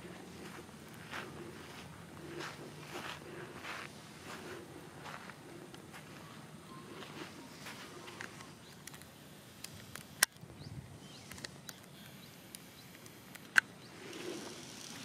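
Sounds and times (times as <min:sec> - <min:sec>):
sharp clicks: 0:08.1 - 0:10.4.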